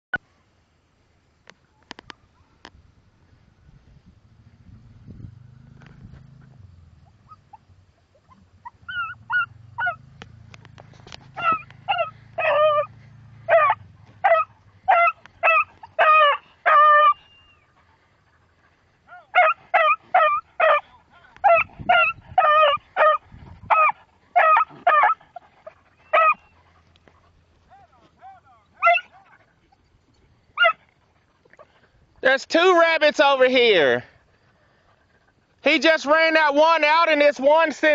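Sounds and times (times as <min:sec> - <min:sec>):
dog baying with high yelps: 0:06.4 - 0:10.2, 0:11.2 - 0:29.8, 0:30.6 - 0:31.8.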